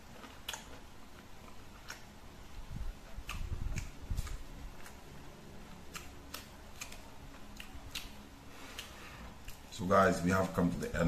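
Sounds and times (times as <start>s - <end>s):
person chewing food: 0.0s - 9.8s
wet mouth clicks: 3.2s - 5.0s, 5.9s - 9.7s.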